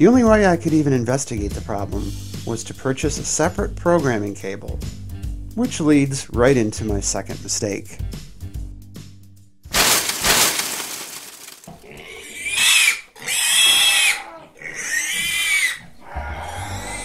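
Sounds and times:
pig squealing: 0:11.7 - 0:17.0.

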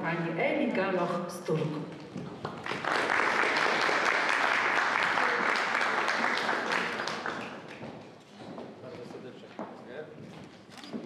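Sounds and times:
audience applauding: 0:02.4 - 0:08.0.

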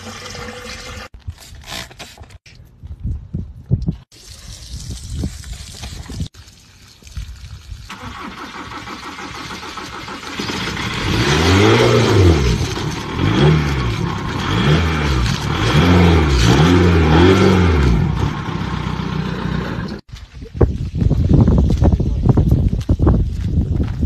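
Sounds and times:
car engine revving: 0:10.3 - 0:20.0.

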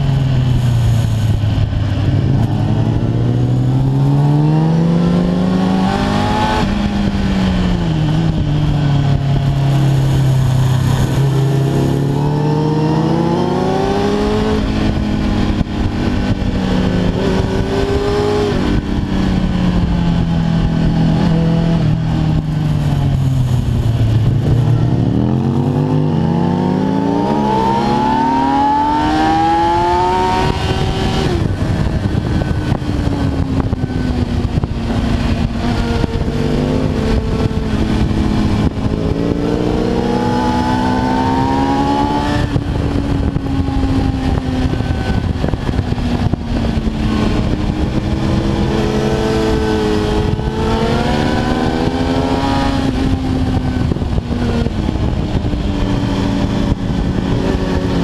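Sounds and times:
motorcycle engine revving: 0:00.0 - 0:58.0
wind noise: 0:00.0 - 0:58.0.

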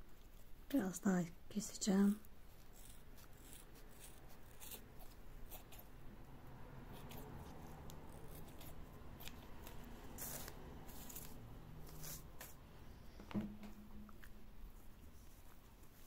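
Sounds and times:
scissors snipping: 0:06.9 - 0:12.6.

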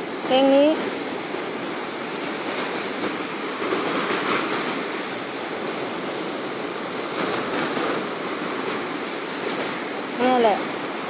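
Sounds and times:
small waves breaking on beach: 0:00.0 - 0:11.0.

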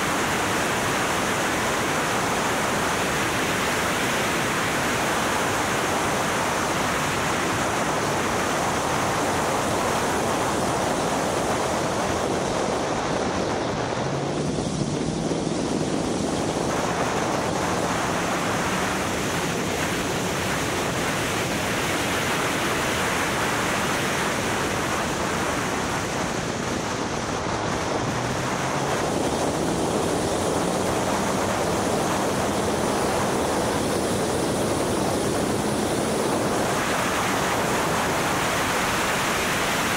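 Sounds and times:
wind rushing on microphone: 0:00.0 - 0:39.9.

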